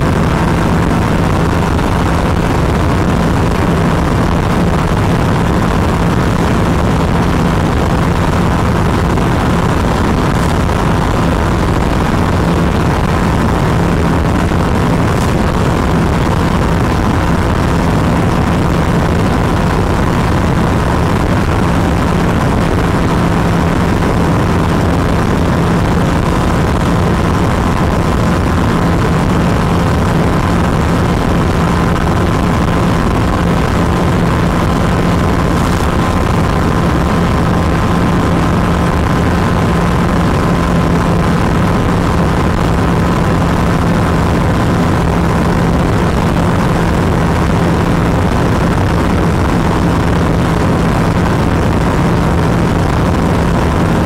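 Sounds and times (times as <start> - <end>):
motorcycle engine cruising: 0.0 - 39.8
wind rushing over microphone: 0.0 - 54.0.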